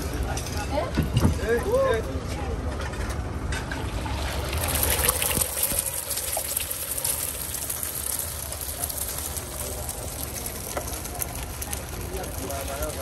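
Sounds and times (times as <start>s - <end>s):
eggs sizzling on a griddle: 3.6s - 13.0s.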